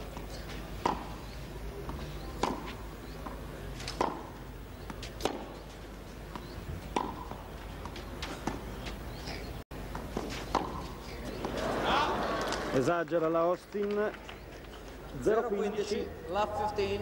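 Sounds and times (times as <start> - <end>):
tennis ball hit by rackets: 0.8 - 1.2, 1.9 - 5.7, 6.3 - 8.7, 9.9 - 11.7.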